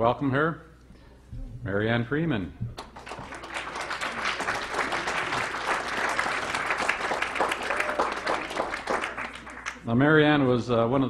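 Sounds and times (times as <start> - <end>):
audience applauding: 2.8 - 9.9.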